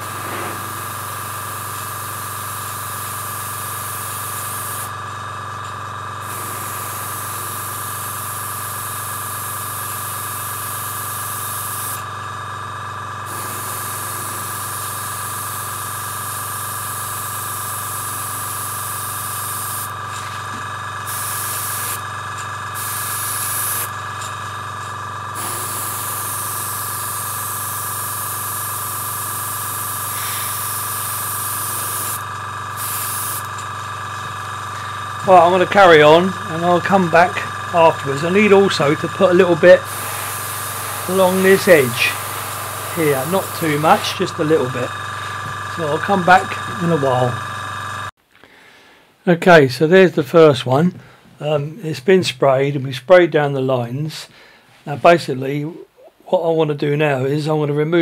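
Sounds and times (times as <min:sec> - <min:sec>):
airbrush spraying hiss: 0:00.0 - 0:04.9, 0:06.2 - 0:12.0, 0:13.3 - 0:22.1, 0:22.7 - 0:24.7, 0:25.3 - 0:48.1
steady hum: 0:00.0 - 0:05.0, 0:06.2 - 0:48.1.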